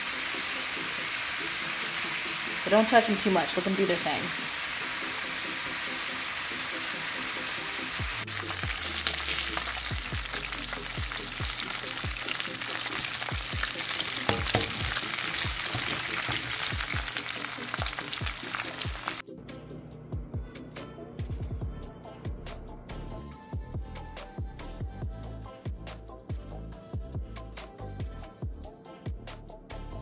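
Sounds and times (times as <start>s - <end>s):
chicken deep-frying in oil: 0.0s - 19.2s
background music with low beat: 7.3s - 30.0s.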